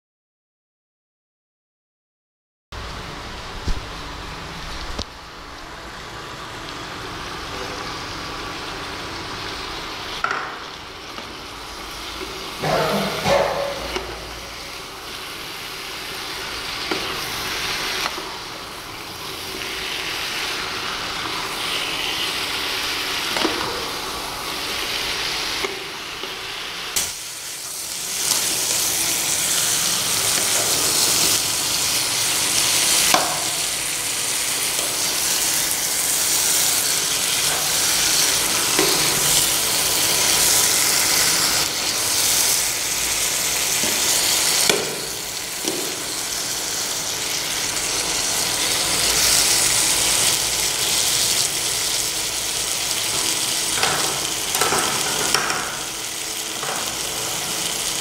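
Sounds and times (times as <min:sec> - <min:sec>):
food sizzling in a pan: 0:03.3 - 0:58.0
spoon knocking against pan: 0:12.6 - 0:14.3.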